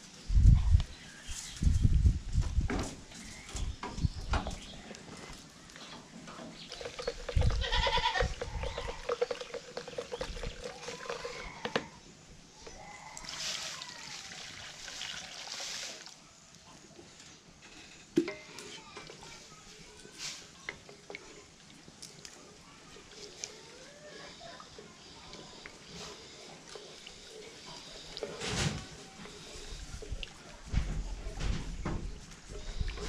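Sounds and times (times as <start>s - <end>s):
goats bleating: 7.4s - 9.0s.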